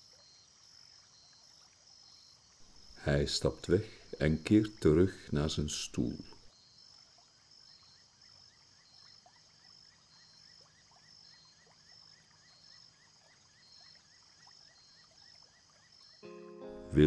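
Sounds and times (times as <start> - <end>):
insects chirping: 0.0 - 16.4.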